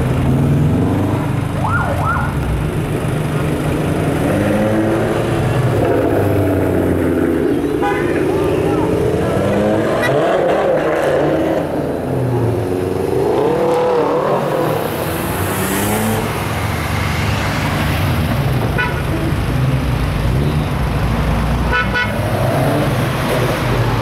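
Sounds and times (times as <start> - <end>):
engine revving: 3.4 - 17.9
car horn toots: 7.8 - 8.4, 18.8 - 19.3, 21.7 - 22.2.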